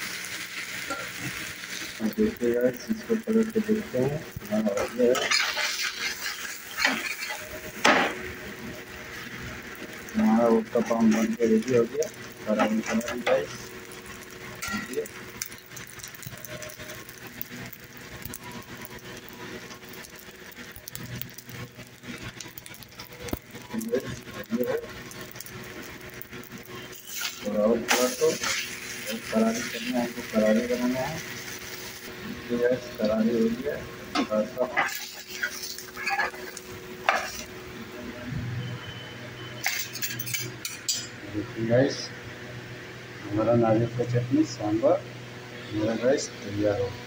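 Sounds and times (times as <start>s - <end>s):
oil sizzling and popping: 0.0s - 41.2s
metal spatula scraping griddle: 4.5s - 8.2s, 10.4s - 13.5s, 14.6s - 17.2s, 26.7s - 37.5s, 39.6s - 41.1s.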